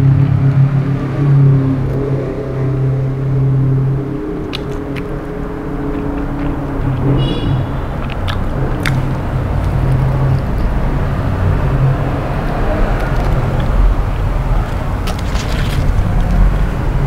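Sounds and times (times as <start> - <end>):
low rumbling background noise: 0.0 - 17.0
person chewing food clicks: 4.4 - 10.8, 12.5 - 14.0.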